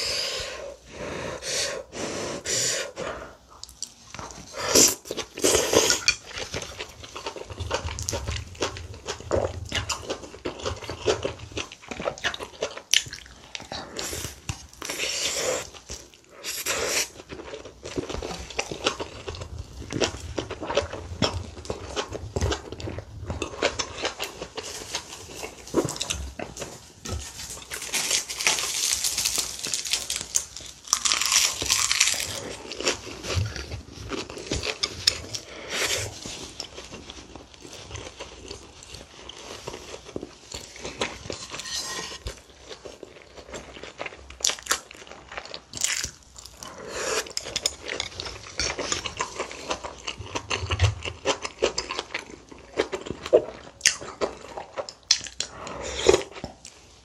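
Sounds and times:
chewing and biting food: 3.5s - 57.0s
seaweed sheet crinkling: 27.2s - 32.4s.

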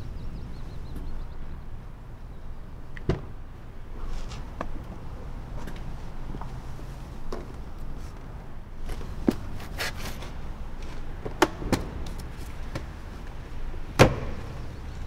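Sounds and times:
short rustle: 4.0s - 4.6s.

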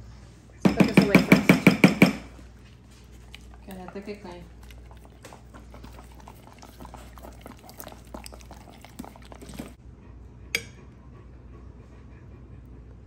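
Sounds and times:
dogs licking a spoon: 2.2s - 9.8s.

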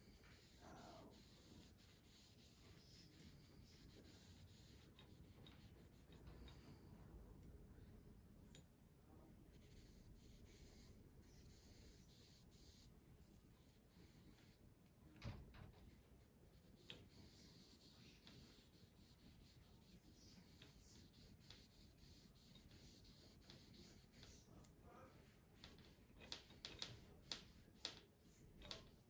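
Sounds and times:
wand rubbing on steel blade: 0.0s - 6.9s, 16.6s - 24.6s, 25.2s - 28.0s
light clicks and taps: 25.6s - 29.0s.

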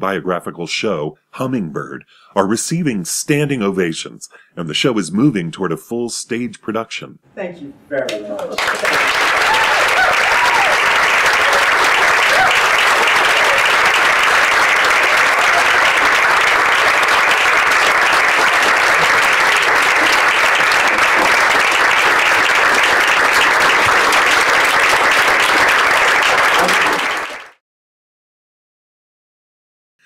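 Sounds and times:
audience applauding: 8.4s - 27.6s.

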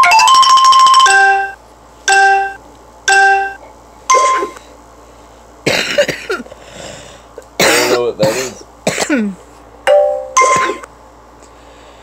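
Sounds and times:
man coughing: 5.6s - 6.5s, 7.6s - 9.4s.

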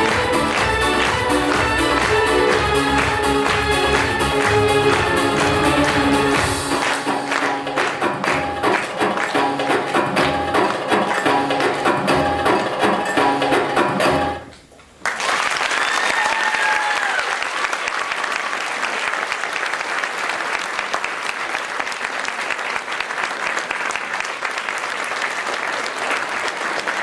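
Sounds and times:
audience applause: 0.0s - 9.4s, 15.0s - 27.0s
belly-dance music with percussion: 0.0s - 14.4s
high drawn-out cheer: 15.2s - 24.0s.

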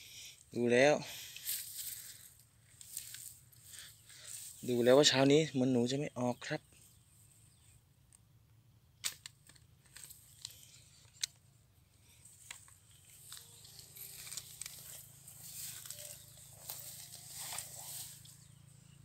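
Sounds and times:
dry grass rustling and crackling: 1.1s - 5.1s, 12.0s - 19.0s.

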